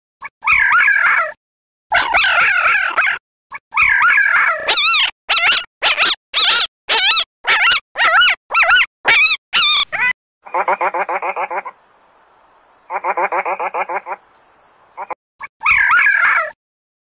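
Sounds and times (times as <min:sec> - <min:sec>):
jackals howling and yelping: 0:00.5 - 0:01.3, 0:03.7 - 0:06.0, 0:10.5 - 0:16.6.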